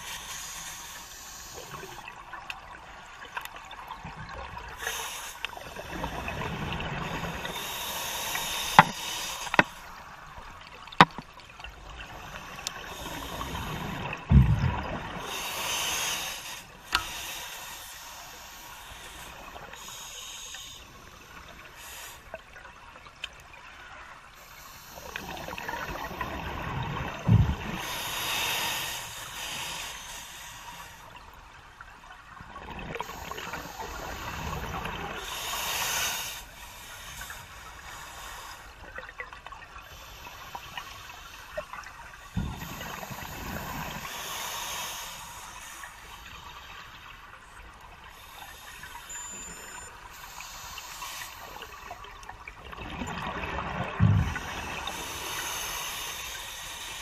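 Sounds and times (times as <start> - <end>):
diver breathing through regulator: 4.8 - 9.9, 12.2 - 14.0, 27.5 - 31.1, 33.0 - 38.8, 42.4 - 46.6, 48.1 - 51.9, 54.1 - 57.0
exhaled bubbles rumbling: 13.1 - 15.3, 25.3 - 27.8, 42.2 - 44.1, 52.0 - 55.0.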